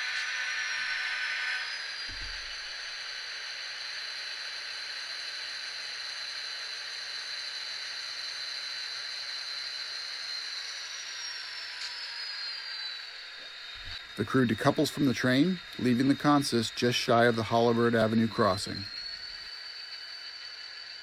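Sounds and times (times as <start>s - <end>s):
model train running: 0.0s - 3.4s, 11.2s - 21.0s
high thin whine: 0.0s - 21.0s.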